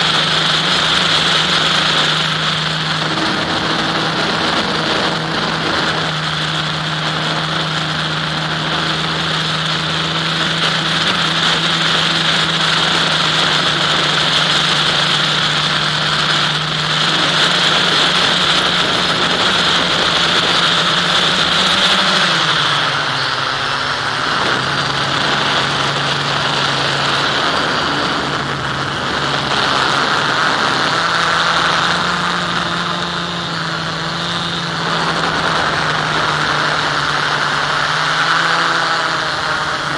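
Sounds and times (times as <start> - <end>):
aircraft motor and propeller hum: 0.0 - 39.9
rushing wind: 0.0 - 39.9.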